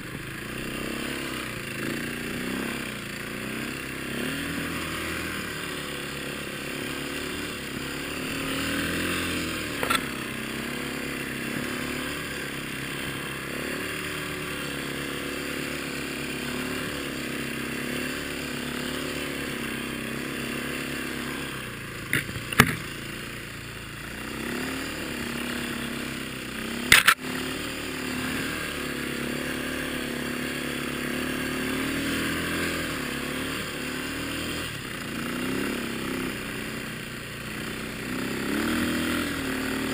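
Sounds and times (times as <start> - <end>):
dirt bike engine under load: 9.0 - 10.4, 21.9 - 23.3, 26.8 - 27.2.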